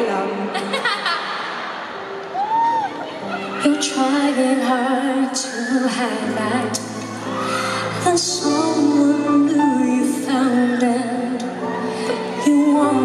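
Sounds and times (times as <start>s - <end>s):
woman singing pop ballad: 3.6s - 13.0s.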